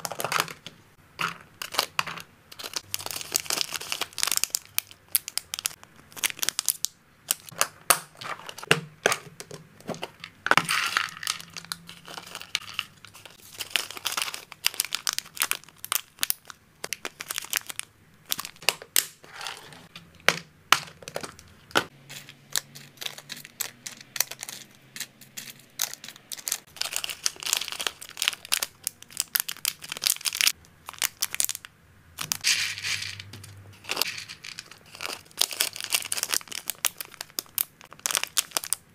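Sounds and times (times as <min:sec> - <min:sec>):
plastic boxes clicking and tapping: 0:00.0 - 0:02.8, 0:07.6 - 0:12.8, 0:19.9 - 0:22.3
plastic bags crinkling: 0:00.0 - 0:08.7, 0:09.9 - 0:19.8, 0:25.4 - 0:38.9.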